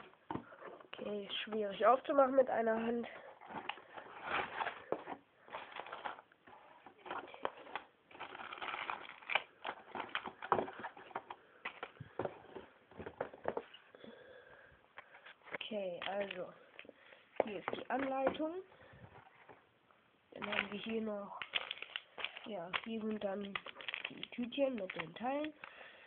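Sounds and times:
cardboard box crackling and rustling: 0:03.4 - 0:11.3.

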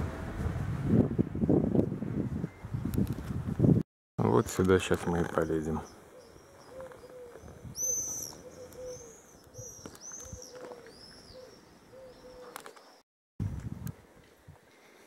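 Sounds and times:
songbird whistling: 0:05.8 - 0:13.0
dove cooing: 0:06.0 - 0:12.8.

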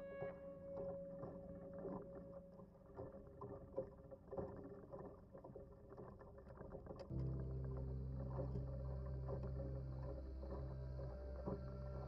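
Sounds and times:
faint steady hum: 0:07.1 - 0:12.0.

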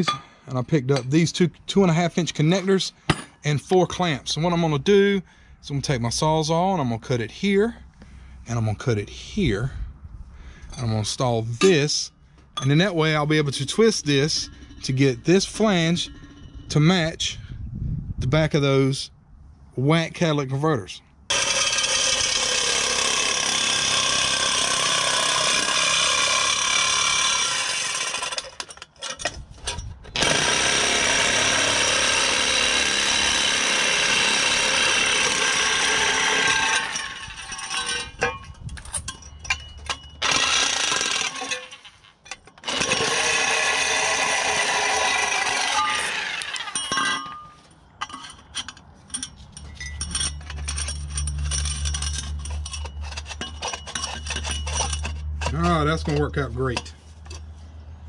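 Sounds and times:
reciprocating saw cutting steel pipe: 0:13.0 - 0:17.3, 0:21.3 - 0:28.7, 0:30.2 - 0:38.2, 0:40.2 - 0:42.0, 0:42.6 - 0:47.2.

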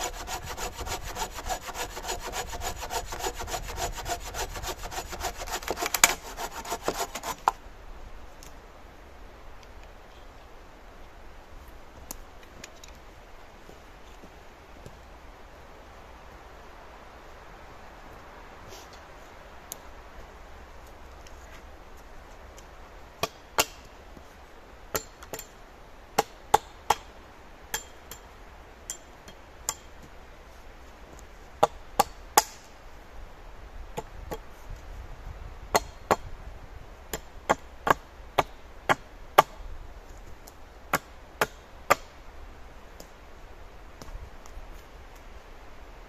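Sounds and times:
hand tool striking wood: 0:00.0 - 0:07.6.

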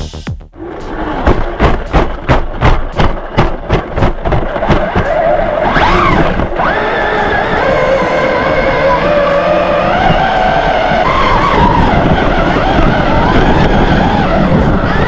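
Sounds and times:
electric motor whine: 0:05.0 - 0:15.0.

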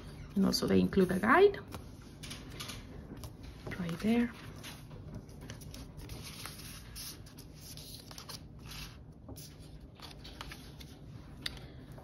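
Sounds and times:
paper rustling and sliding: 0:04.4 - 0:11.2.

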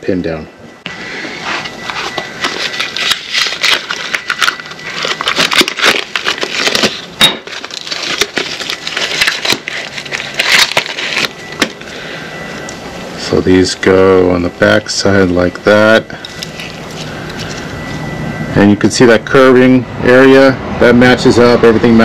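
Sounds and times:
rustling: 0:00.9 - 0:13.3, 0:16.2 - 0:18.2
metal parts clicking and rattling: 0:02.1 - 0:11.9, 0:16.2 - 0:17.6.

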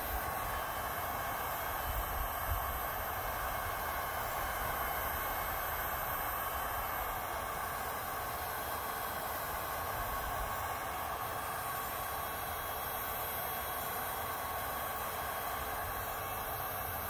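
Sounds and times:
heat gun fan blowing: 0:00.0 - 0:17.0.

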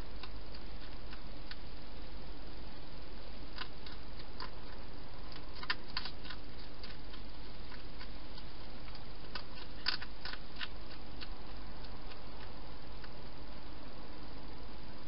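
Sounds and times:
hedgehog chewing clicks: 0:00.0 - 0:01.7, 0:03.5 - 0:13.3
steady hiss: 0:00.0 - 0:15.0.

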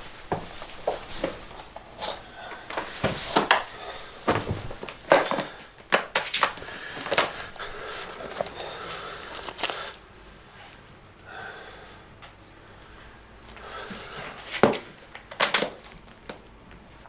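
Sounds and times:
objects knocking and clattering: 0:02.7 - 0:07.6.

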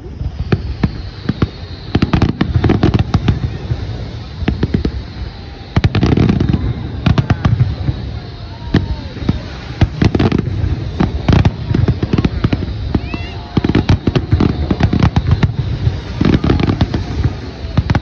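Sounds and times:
deep fireworks booms: 0:00.0 - 0:18.0
fireworks bangs and crackles: 0:00.0 - 0:18.0.

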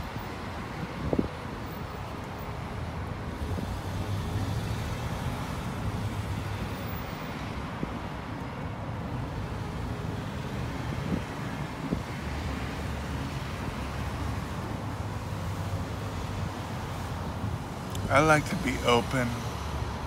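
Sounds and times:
passing vehicles engine rumble: 0:09.0 - 0:20.0.

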